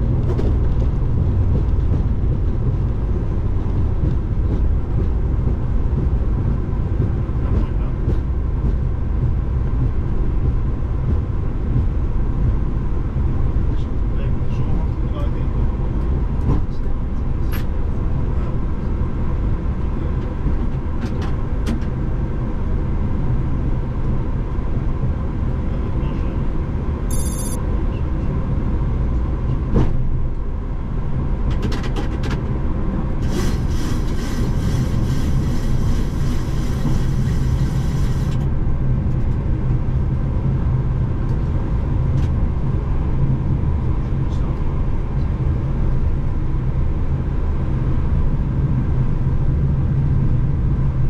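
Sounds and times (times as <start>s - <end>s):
low aircraft rumble: 0.0s - 51.0s
high electronic tone: 27.1s - 27.6s
high layered whine: 27.1s - 27.6s.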